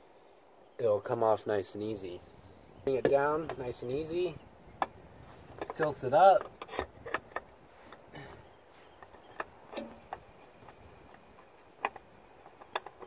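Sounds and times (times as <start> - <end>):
clicks and knocks on engine parts: 5.6 - 13.0.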